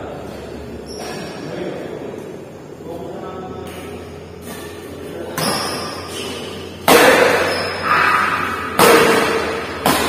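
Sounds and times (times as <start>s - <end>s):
rackets hitting shuttlecock: 3.7s - 10.0s.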